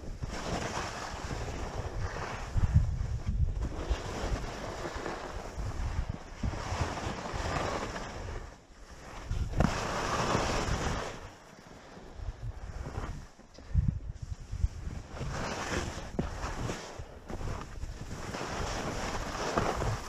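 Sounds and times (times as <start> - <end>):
skis scraping over snow: 0.0 - 13.4, 14.3 - 20.0
wind on microphone: 0.0 - 20.0.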